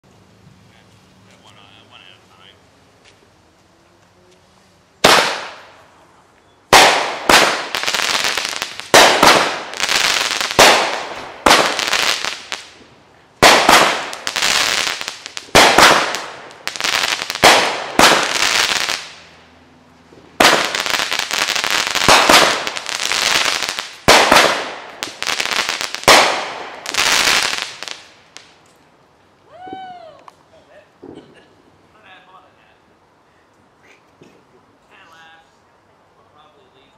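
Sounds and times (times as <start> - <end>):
fireworks bangs: 5.0 - 5.8, 6.7 - 19.4, 20.1 - 28.6, 31.0 - 31.4.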